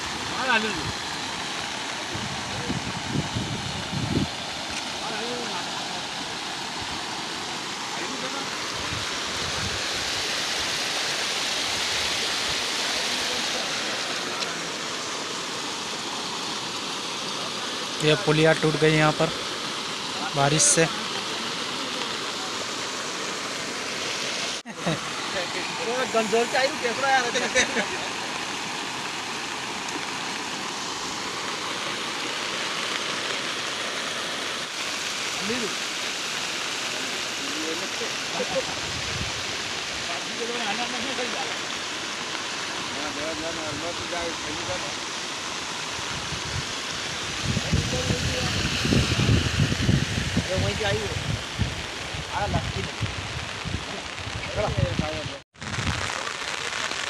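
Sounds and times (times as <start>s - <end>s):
floodwater rushing: 0.0s - 57.0s.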